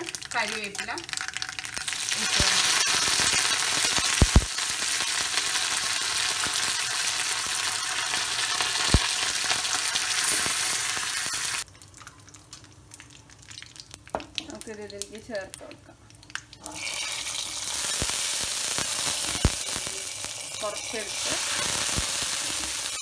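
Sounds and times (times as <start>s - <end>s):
leaves and seeds sizzling in oil: 0.0s - 11.7s, 16.5s - 23.0s.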